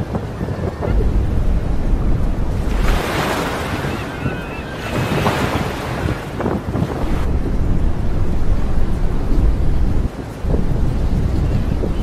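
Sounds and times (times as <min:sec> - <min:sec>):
water splashing against boat: 0:00.0 - 0:12.0
wind rumbling on microphone: 0:00.0 - 0:12.0
faint seagull calls: 0:03.9 - 0:04.9.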